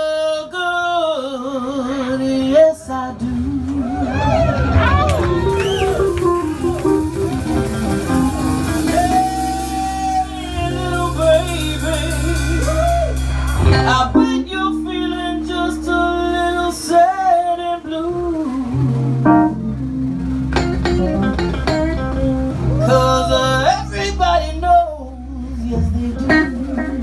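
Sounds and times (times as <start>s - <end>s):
woman singing: 0.0s - 6.6s, 8.8s - 19.0s, 21.9s - 27.0s
bass guitar: 1.4s - 27.0s
drums: 1.5s - 27.0s
electric guitar: 1.8s - 27.0s.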